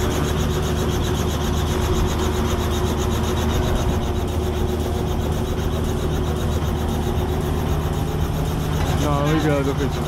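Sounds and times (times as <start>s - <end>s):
helicopter rotor chopping: 0.0s - 10.0s.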